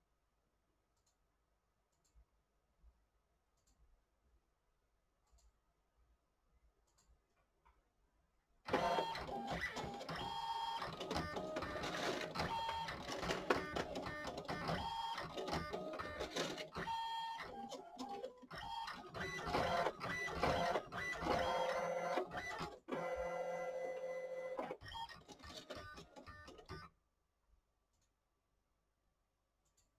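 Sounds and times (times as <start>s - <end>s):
printer mechanical clicks: 8.7s - 23.6s
printer motors stepping tones: 8.7s - 26.8s.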